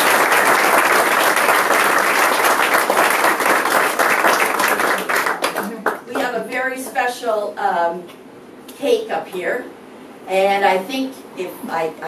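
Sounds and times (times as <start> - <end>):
audience applauding: 0.0 - 6.0.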